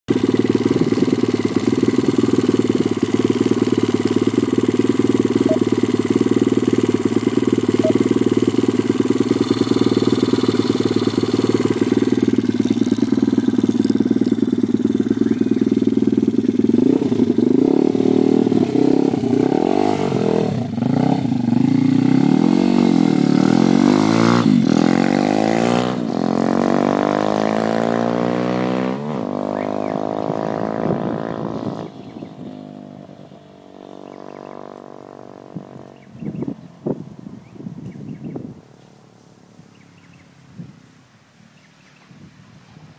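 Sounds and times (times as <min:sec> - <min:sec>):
pit bike engine revving: 0:00.1 - 0:33.0.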